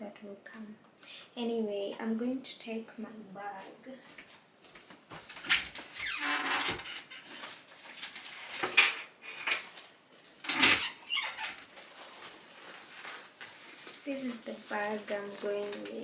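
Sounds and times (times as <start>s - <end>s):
squeak: 6.0s - 7.1s, 10.7s - 11.6s.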